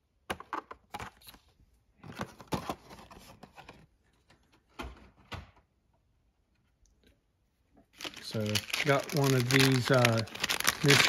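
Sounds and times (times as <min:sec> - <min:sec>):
plastic packs rustling and clicking: 0:08.0 - 0:11.0.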